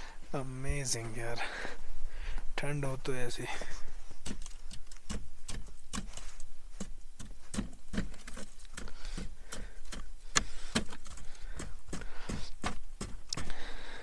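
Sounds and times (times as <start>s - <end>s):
sharp knocks on frozen snow: 6.8s - 13.2s.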